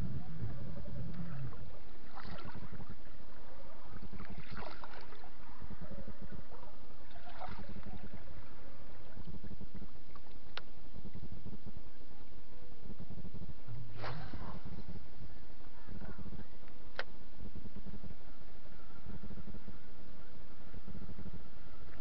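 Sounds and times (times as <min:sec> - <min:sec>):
wind rumble on microphone: 0:00.0 - 0:22.0
water lapping at boat: 0:00.3 - 0:11.3
splashy washes: 0:04.2 - 0:05.2.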